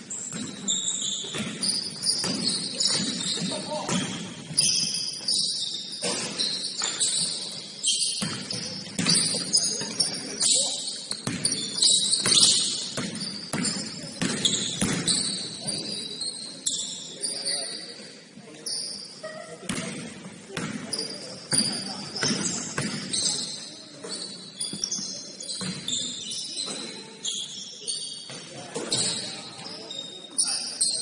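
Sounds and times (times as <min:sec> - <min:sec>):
sneakers squeaking: 0:00.0 - 0:31.0
basketball bouncing on court: 0:00.1 - 0:10.3, 0:11.0 - 0:16.0, 0:19.7 - 0:27.1.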